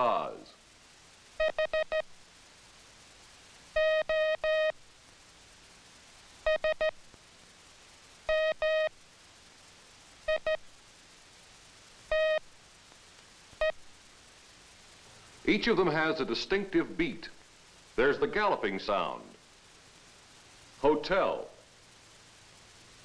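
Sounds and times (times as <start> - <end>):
morse code beeps: 1.4 - 2.0, 3.8 - 4.7, 6.5 - 6.9, 8.3 - 8.9, 12.1 - 12.4.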